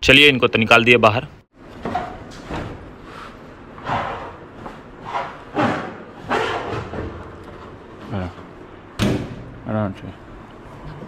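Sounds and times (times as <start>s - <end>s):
sheet metal scraping and thudding: 3.8s - 7.8s.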